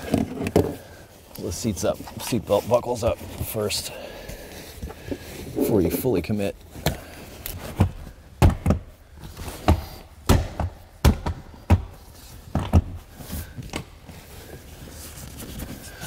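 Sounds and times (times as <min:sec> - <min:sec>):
car seat thumping into clips: 0:07.7 - 0:08.9, 0:09.6 - 0:13.0.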